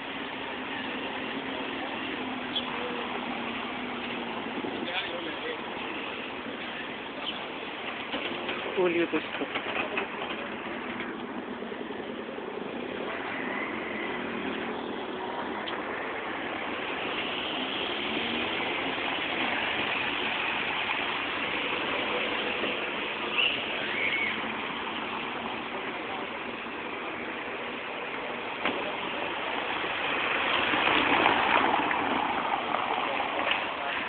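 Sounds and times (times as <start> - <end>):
passing traffic rushing: 0.0 - 34.0.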